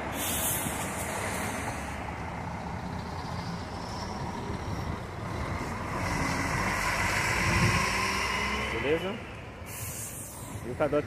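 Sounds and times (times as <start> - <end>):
diesel coach engine running: 0.0 - 7.9.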